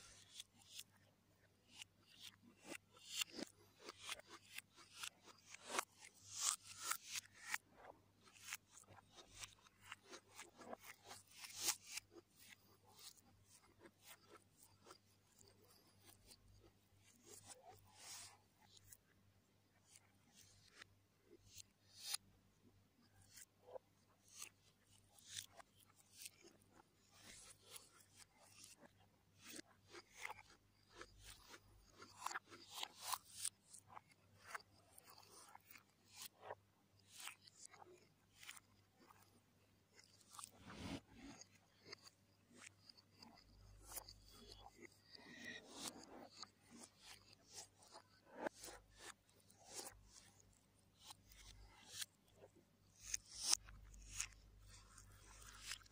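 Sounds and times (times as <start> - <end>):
crunching and chewing food: 12.0 - 16.4, 25.4 - 27.3, 28.5 - 48.2, 51.3 - 55.9.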